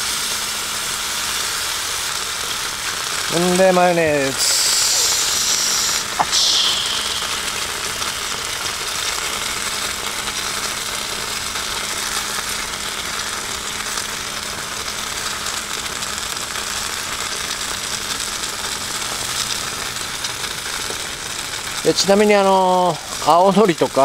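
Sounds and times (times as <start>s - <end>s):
food sizzling on griddle: 0.0s - 24.0s.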